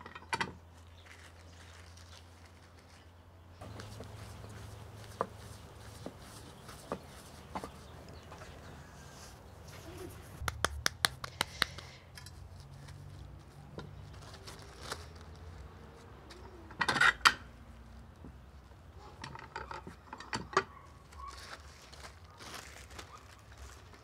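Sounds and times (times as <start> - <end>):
plastic lining rustling: 0.8 - 3.1, 14.0 - 15.8, 21.0 - 24.0
tortilla press clicking and knocking: 10.4 - 12.1.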